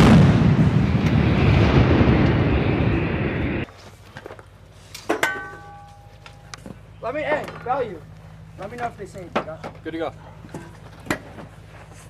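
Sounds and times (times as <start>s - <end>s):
howitzer shot boom: 0.0s - 3.6s
sharp metallic clang: 5.1s - 6.2s.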